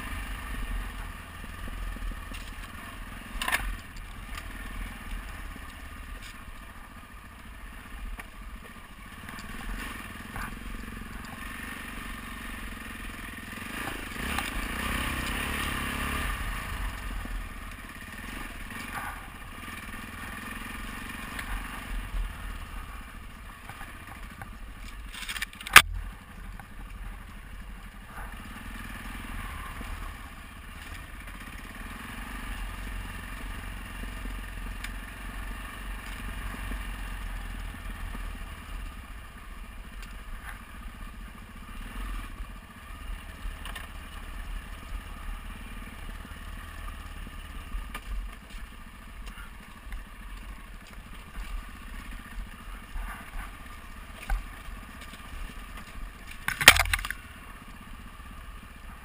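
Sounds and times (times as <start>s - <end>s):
motorcycle engine running: 0.0s - 59.0s
motorcycle rattling: 0.0s - 59.0s
tyres crunching on gravel: 22.8s - 27.5s, 52.9s - 57.3s.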